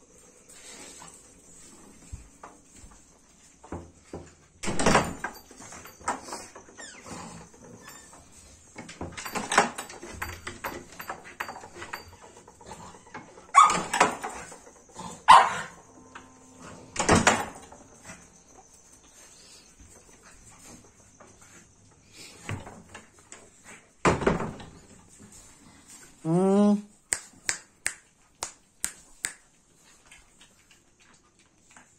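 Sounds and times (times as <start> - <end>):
puppies yapping: 12.9 - 15.9.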